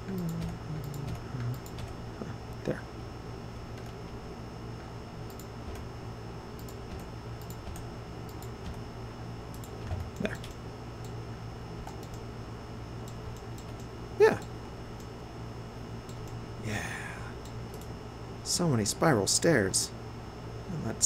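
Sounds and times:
low hum: 0:00.0 - 0:19.3.

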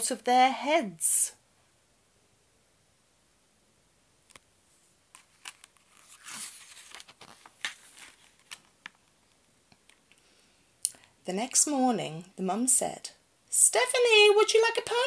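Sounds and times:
book page turning: 0:04.3 - 0:10.1.

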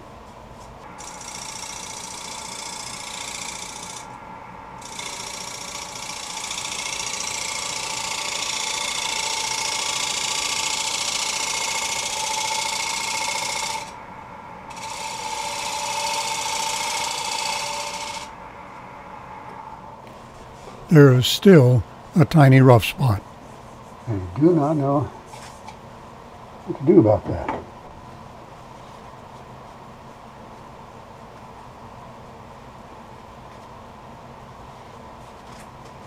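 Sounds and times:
wood lathe running: 0:01.0 - 0:04.1, 0:04.8 - 0:14.0, 0:14.7 - 0:18.3.

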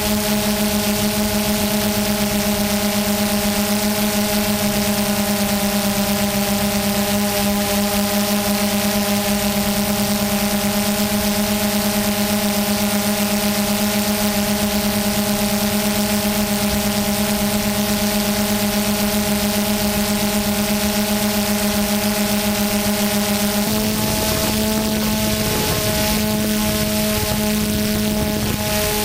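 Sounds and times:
drone propellers humming: 0:00.0 - 0:29.0.

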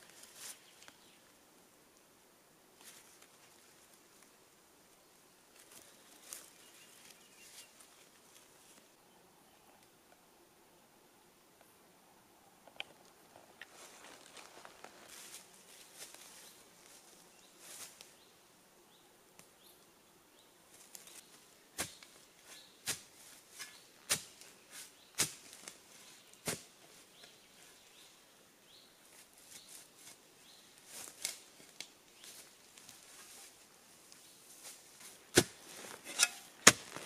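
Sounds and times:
soft digging knocks and scrapes: 0:20.9 - 0:27.7, 0:34.5 - 0:37.0
digging tool striking ground: 0:35.3 - 0:37.0.

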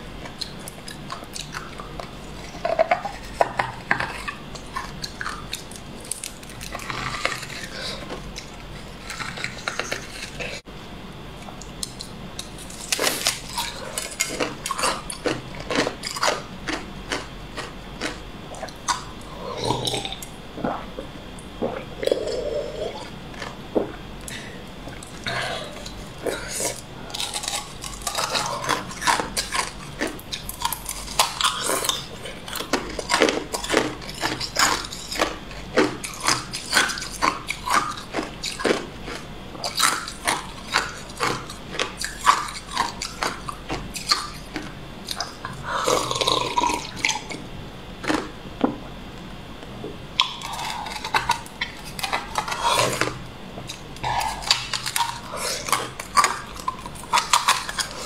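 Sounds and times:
ice crunching between teeth: 0:11.8 - 0:20.3, 0:25.0 - 0:47.4, 0:50.2 - 0:58.0.

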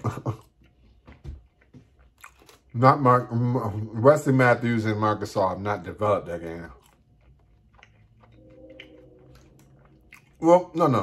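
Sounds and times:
chewing with mouth clicks: 0:00.2 - 0:02.9, 0:06.2 - 0:11.0
low hum: 0:03.3 - 0:11.0.

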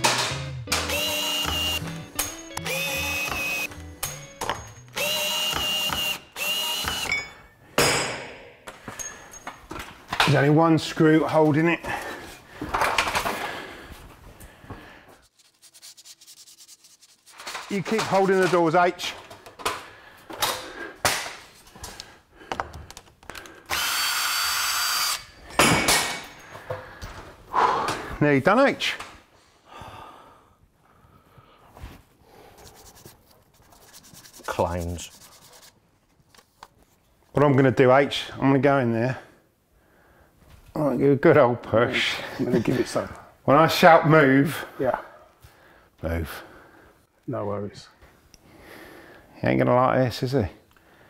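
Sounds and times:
cordless drill spinning: 0:00.8 - 0:03.8, 0:04.9 - 0:07.2, 0:23.7 - 0:25.4.

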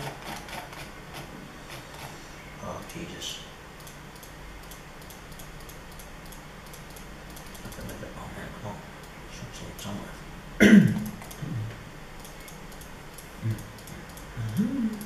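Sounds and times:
person clearing throat: 0:10.6 - 0:11.6.

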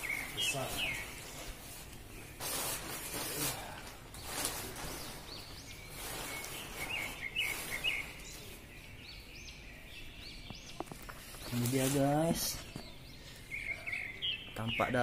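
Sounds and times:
nylon fabric rustling: 0:00.0 - 0:08.7
birds chirping: 0:00.0 - 0:15.0.

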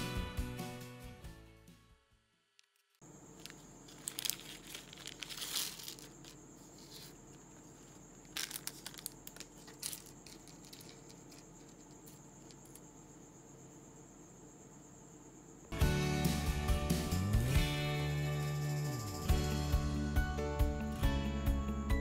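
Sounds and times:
plastic bag crinkling: 0:02.7 - 0:12.8.

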